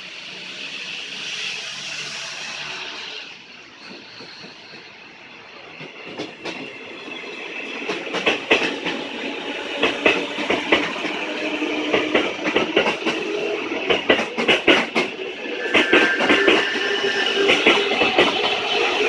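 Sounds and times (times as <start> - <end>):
train wheels clacking over rail joints: 3.8 - 19.0.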